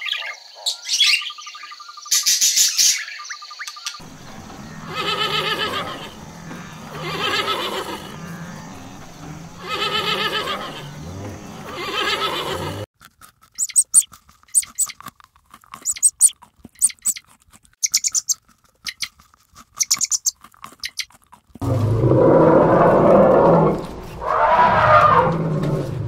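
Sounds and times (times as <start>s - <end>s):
horse whinnying: 4.8s - 8.9s, 9.6s - 11.0s, 11.6s - 12.9s
rabbit chewing grass clicks: 13.0s - 21.6s.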